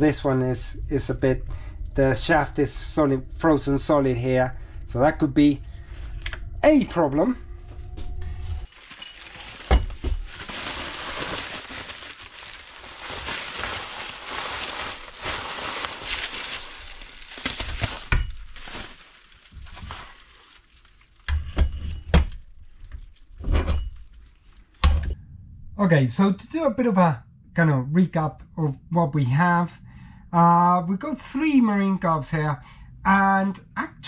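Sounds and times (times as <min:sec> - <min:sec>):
bubble wrap rustling: 0:08.6 - 0:21.4, 0:22.4 - 0:24.8.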